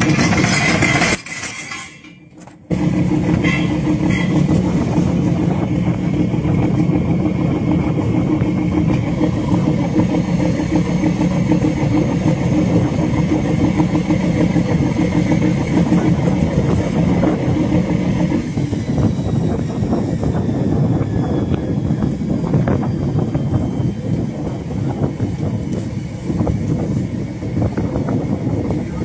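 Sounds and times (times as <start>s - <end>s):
boat engine droning: 0.0s - 29.0s.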